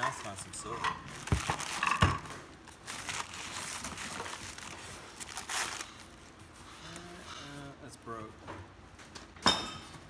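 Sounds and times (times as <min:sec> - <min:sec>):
packing paper crinkling: 0:01.1 - 0:07.4.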